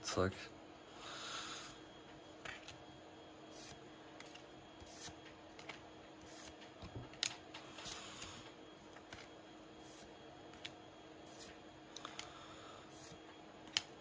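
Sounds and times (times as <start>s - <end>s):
trading cards swishing and snapping: 2.4s - 2.8s, 3.5s - 8.0s, 8.9s - 12.3s, 13.0s - 14.0s.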